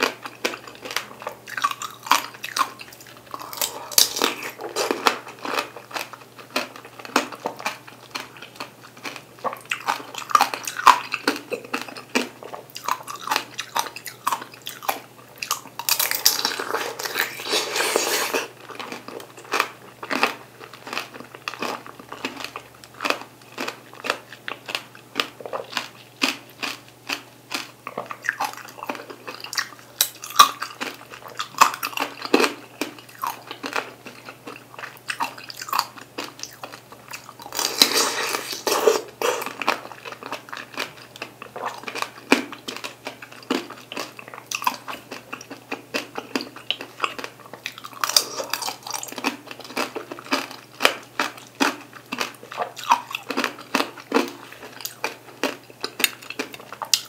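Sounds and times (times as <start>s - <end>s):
candy shell crunching: 0.0s - 57.0s
chewing juicy fruit: 0.0s - 57.0s.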